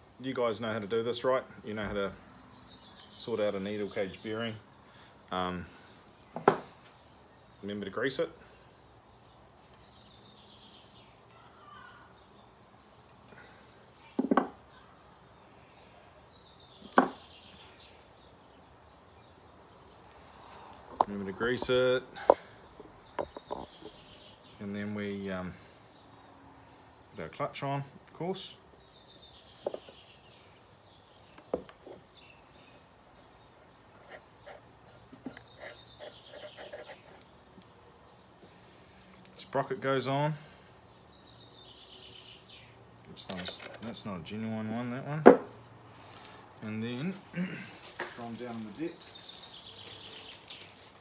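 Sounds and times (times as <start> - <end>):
tools knocking on workbench: 45.3 - 45.5.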